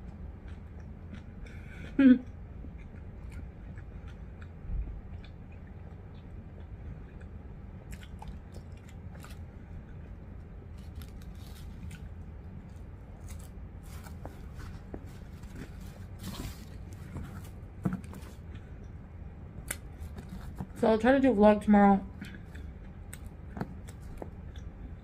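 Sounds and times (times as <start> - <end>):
chewing and mouth clicks: 0.0 - 10.2, 22.1 - 25.0
low hum: 0.0 - 25.0
plastic wrapper rustling: 10.7 - 12.1.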